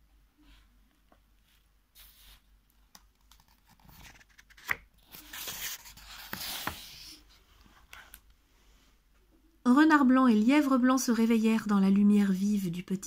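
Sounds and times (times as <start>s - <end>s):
paper page rustling: 3.1s - 7.2s.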